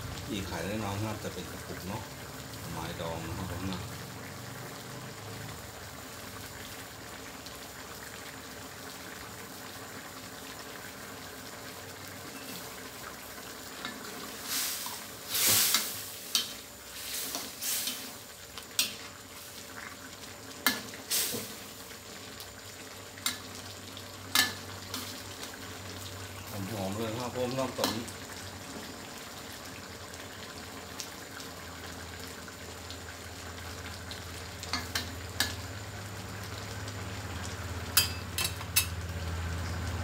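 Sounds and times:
curry simmering: 0:00.0 - 0:40.0
ladle tapping metal pan: 0:38.0 - 0:39.0.

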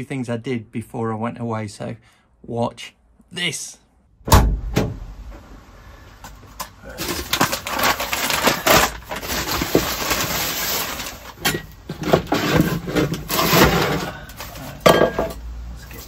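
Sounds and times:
plastic sacks rustling: 0:06.5 - 0:14.8.

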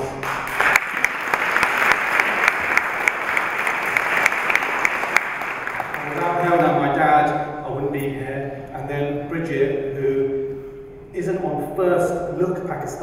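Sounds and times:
audience applauding: 0:00.0 - 0:06.9
person speaking: 0:06.0 - 0:10.2.

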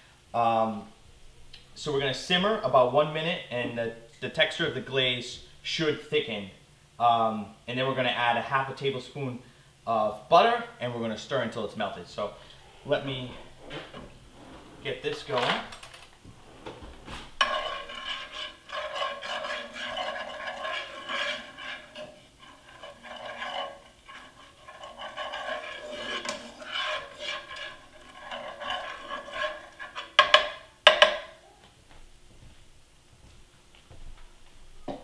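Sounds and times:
spoon scraping frying pan: 0:12.5 - 0:15.7, 0:16.3 - 0:31.3
spoon tapping pan: 0:24.9 - 0:31.3.

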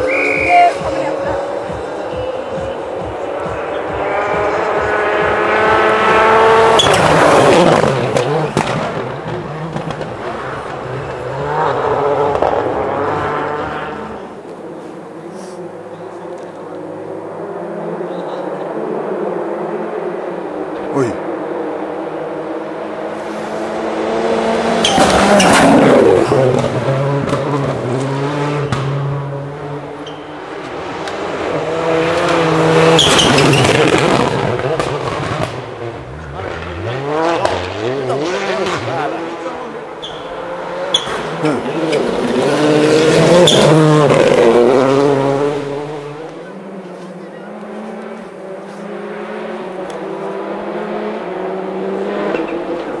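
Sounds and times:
rally car engine at full throttle: 0:00.0 - 0:53.0
rush of passing car: 0:00.0 - 0:53.0.

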